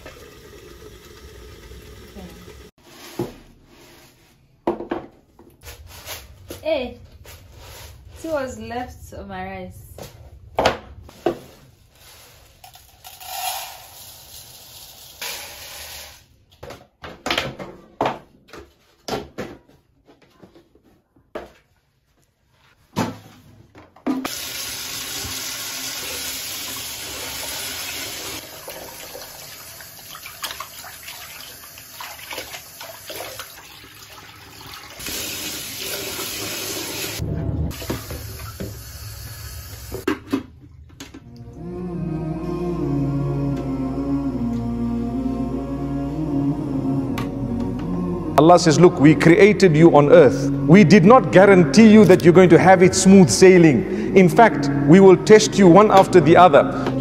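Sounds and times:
tap water running: 0.0 - 2.7, 24.3 - 40.1.

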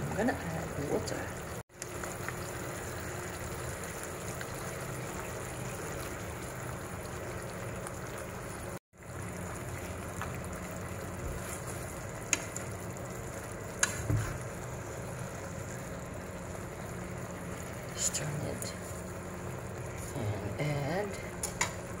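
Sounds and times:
fish sizzling in a pan: 0.2 - 22.0
chopsticks clicking on pan: 21.4 - 21.8.

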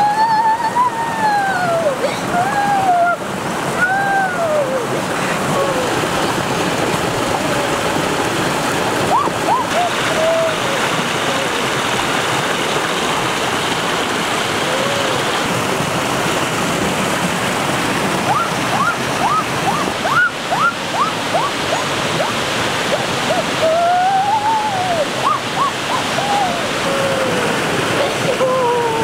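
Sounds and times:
person saying ooh: 0.0 - 6.1, 9.1 - 11.6, 14.6 - 15.5, 18.3 - 22.4, 23.0 - 29.0
water rushing over rocks: 0.0 - 29.0.

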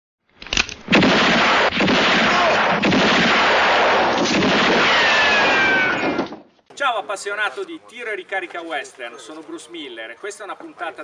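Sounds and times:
gunfire blasts: 0.8 - 6.2.

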